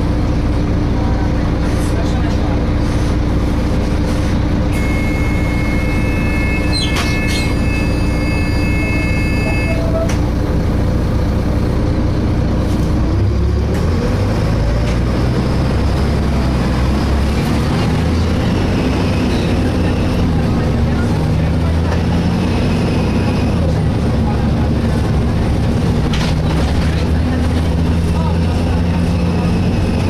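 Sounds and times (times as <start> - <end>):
bus diesel engine: 0.0 - 30.0
high steady screech: 4.8 - 9.9.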